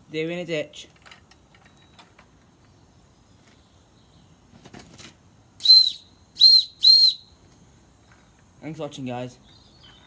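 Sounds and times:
steam whistle toots: 0:05.6 - 0:07.3.

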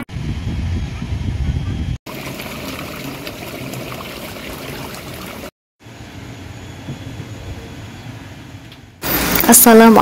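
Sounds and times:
waterfall splashing into pond: 0:02.1 - 0:05.5.

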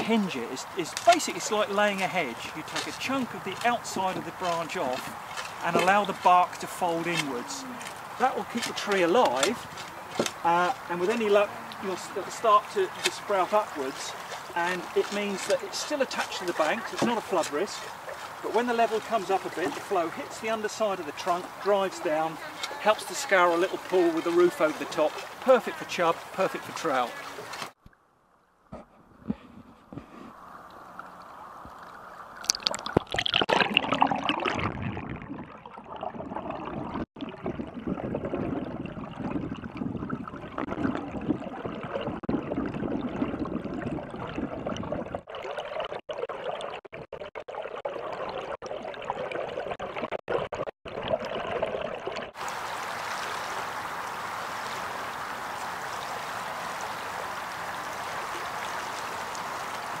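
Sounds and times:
water splashing: 0:00.0 - 0:28.0, 0:28.7 - 1:00.0
stream flowing: 0:00.0 - 0:28.7, 0:29.9 - 0:37.8, 0:47.9 - 1:00.0
muffled underwater gurgling: 0:32.5 - 0:46.8.

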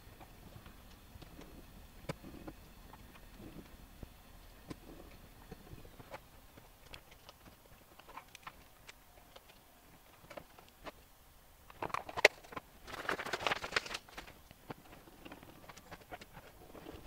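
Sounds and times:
plastic case clicking and clattering: 0:11.7 - 0:17.0.

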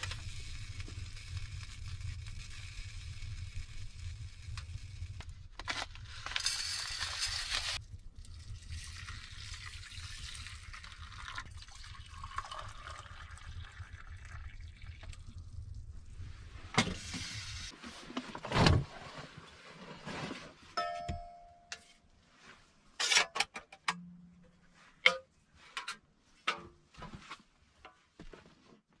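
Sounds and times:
pouring into metal bowl: 0:06.2 - 0:15.8.

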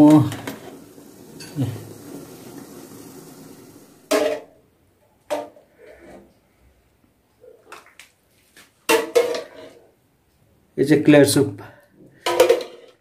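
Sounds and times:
faint steady hiss: 0:00.0 - 0:13.0
ladle and lid knocking pots: 0:12.2 - 0:13.0.

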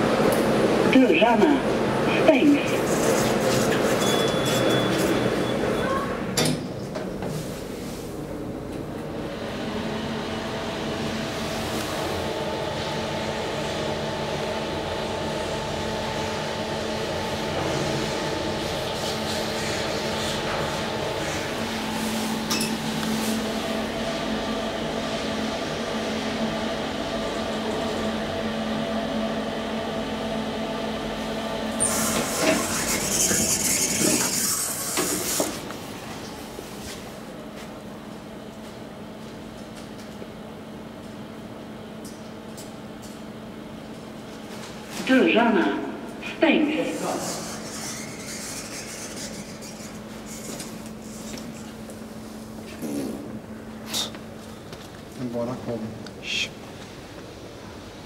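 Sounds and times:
elevator hum and rumble: 0:00.0 - 0:58.0
elevator humming: 0:20.4 - 0:32.7
elevator doors hissing and clicking: 0:31.6 - 0:35.8.

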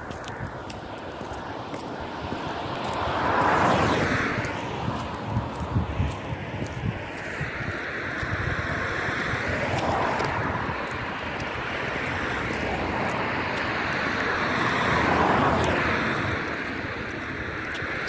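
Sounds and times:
cars driving past: 0:00.0 - 0:18.0.

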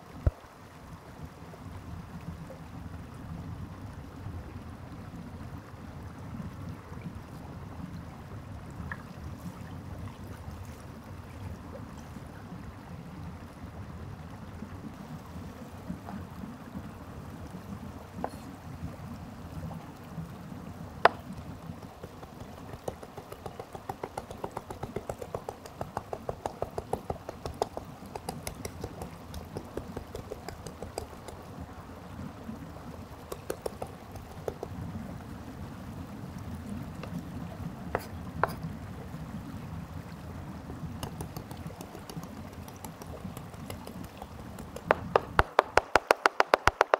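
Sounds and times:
stream running: 0:00.0 - 0:46.9
knife chopping meat on board: 0:21.8 - 0:31.4, 0:33.3 - 0:34.7, 0:41.0 - 0:46.9.

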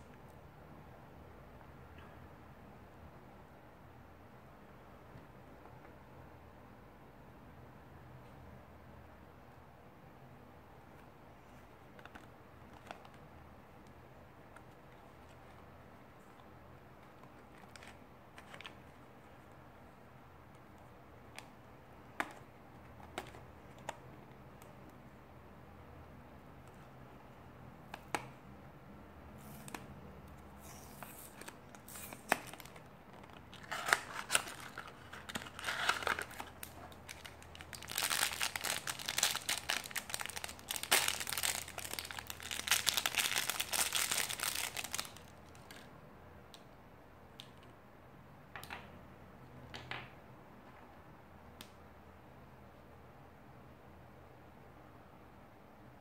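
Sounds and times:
foil packet crinkling and tearing: 0:30.7 - 0:45.8.

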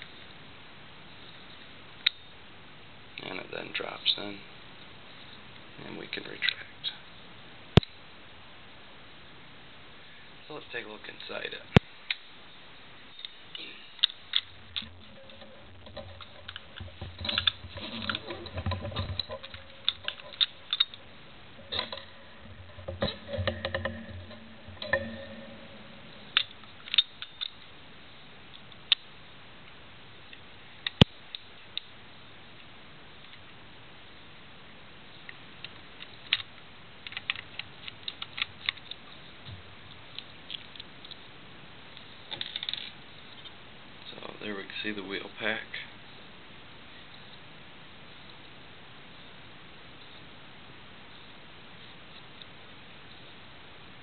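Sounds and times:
metal lock parts clicking: 0:14.0 - 0:21.0.

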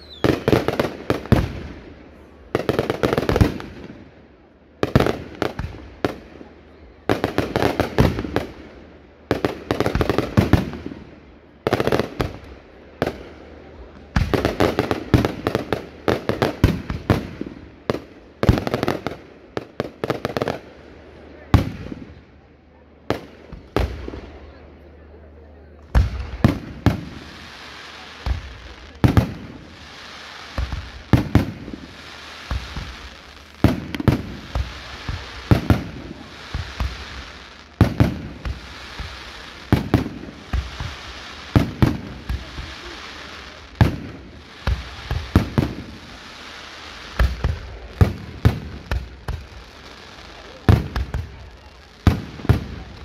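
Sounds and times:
fireworks exploding: 0:00.0 - 0:53.0
steady hiss: 0:00.0 - 0:53.0.

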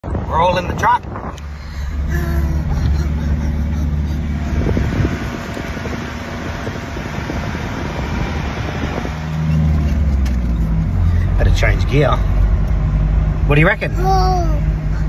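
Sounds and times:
wind buffeting microphone: 0:00.0 - 0:11.1
truck engine and road noise: 0:00.0 - 0:15.0.

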